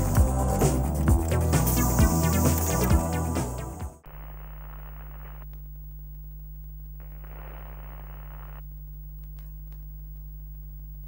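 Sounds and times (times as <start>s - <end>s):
low electrical hum: 4.0s - 11.0s
soft static hiss: 4.0s - 11.0s.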